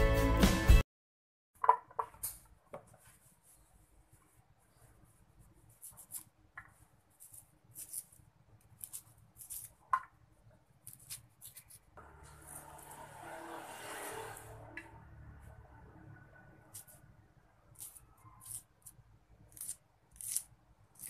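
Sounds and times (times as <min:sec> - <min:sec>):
knife slicing shallots: 0:07.2 - 0:10.0, 0:17.7 - 0:21.0.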